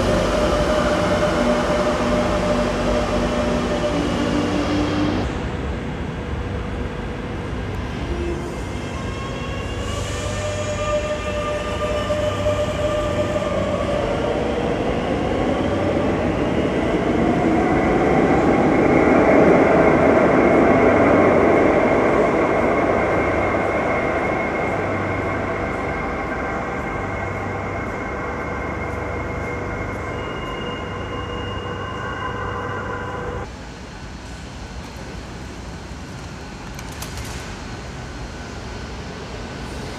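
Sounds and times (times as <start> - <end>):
electric train motor whine: 0.0 - 5.5
train rumble: 0.0 - 39.9.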